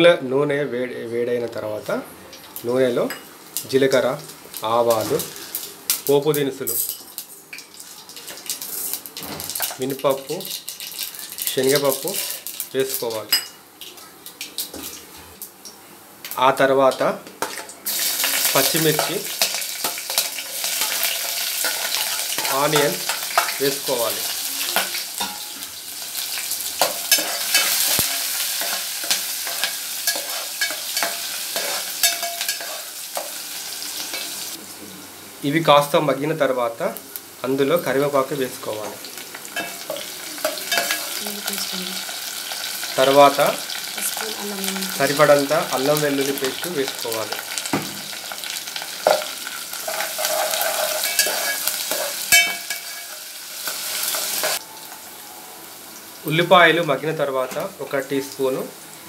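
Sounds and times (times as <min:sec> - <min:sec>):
onions sizzling in hot oil: 0:01.5 - 0:59.0
metal spoon scraping pot: 0:49.9 - 0:54.6.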